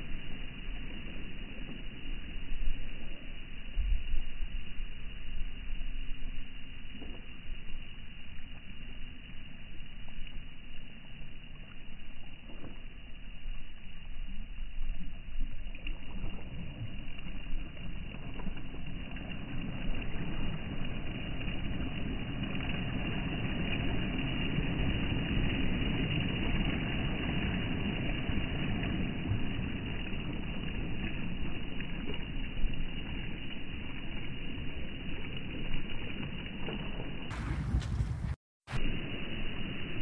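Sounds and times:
sea waves breaking on shore: 0:15.7 - 0:40.0.

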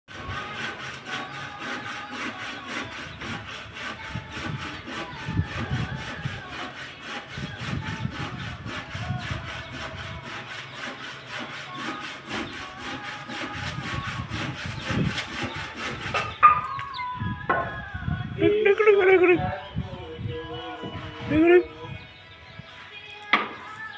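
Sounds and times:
rapid rhythmic rasping: 0:00.1 - 0:16.7.

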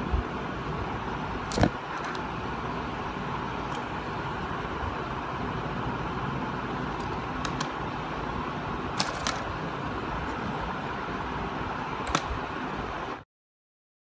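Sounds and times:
background rumble and hiss: 0:00.0 - 0:13.2
plastic parts clicking: 0:09.0 - 0:09.5, 0:12.0 - 0:12.3.

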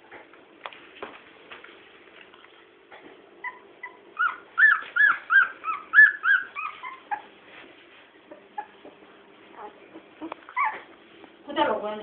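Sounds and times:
puppies whimpering and squealing: 0:03.4 - 0:07.4, 0:08.2 - 0:11.0.

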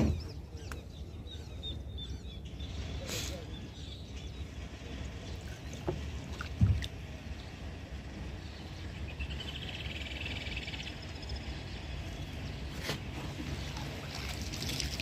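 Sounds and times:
water moving around boat hull: 0:05.4 - 0:07.4, 0:12.6 - 0:15.0.

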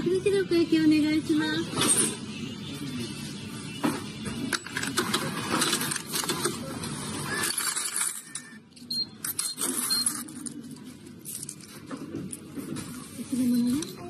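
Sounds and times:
coins clinking in a tray: 0:07.3 - 0:12.4.

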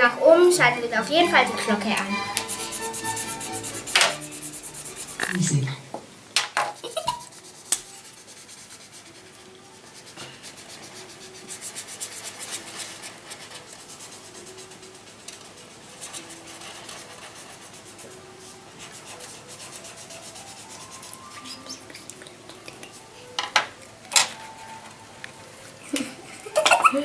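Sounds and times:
markers scratching on paper: 0:01.0 - 0:05.5, 0:06.8 - 0:23.2.

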